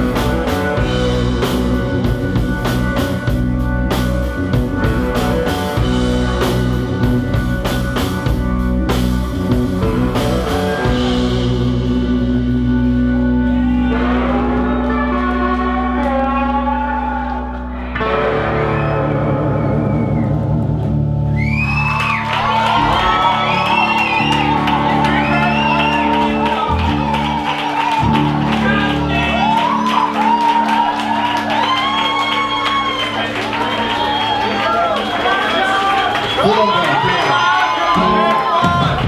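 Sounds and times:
drum kit: 0.0 - 14.3, 37.6 - 39.0
electric guitar: 0.0 - 39.0.

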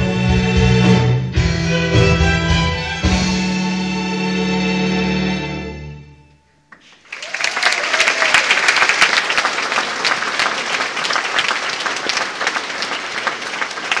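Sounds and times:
audience applauding: 6.7 - 14.0.

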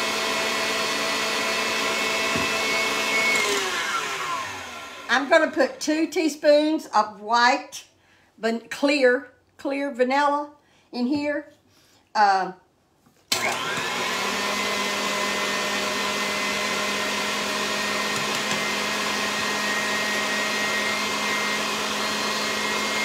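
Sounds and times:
stand mixer running: 0.0 - 5.8, 13.4 - 23.0.

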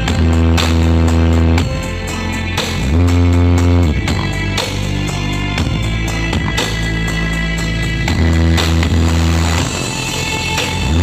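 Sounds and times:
loud bass-heavy music on speakers: 0.0 - 11.0.

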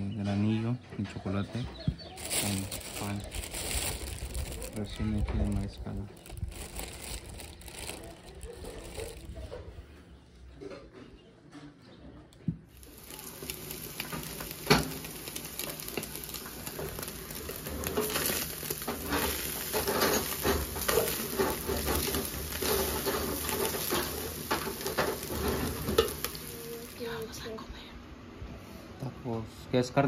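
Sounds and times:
meat sizzling in a pot: 2.2 - 4.8, 12.8 - 27.4.

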